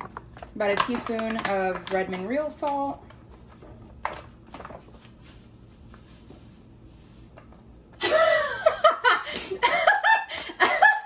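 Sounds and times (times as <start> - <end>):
woman laughing: 8.0 - 11.0.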